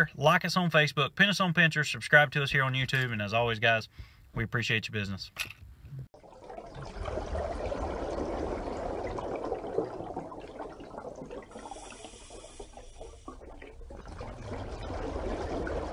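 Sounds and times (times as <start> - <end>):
water running and splashing: 6.2 - 15.9.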